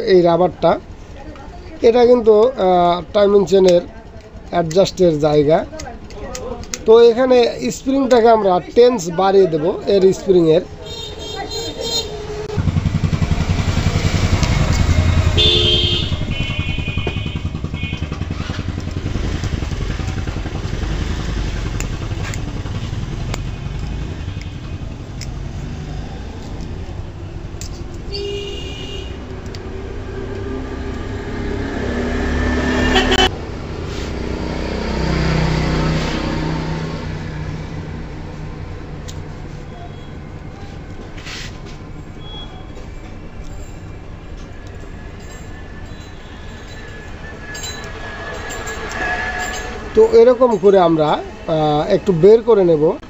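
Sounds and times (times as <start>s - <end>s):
vehicle engine running: 9.8s - 51.7s
short horn toots: 15.3s - 18.2s, 32.7s - 33.3s.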